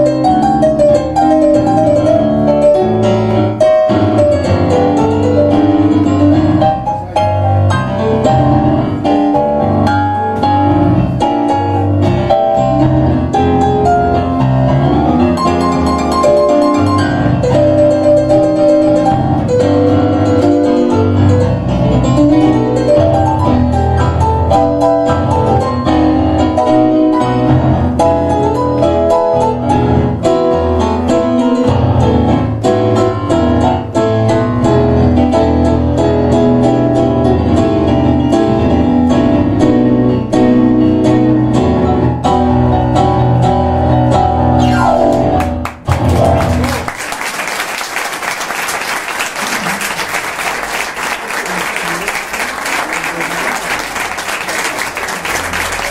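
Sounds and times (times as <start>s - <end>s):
tango piano duet: 0.0s - 55.9s
applause: 45.4s - 55.9s.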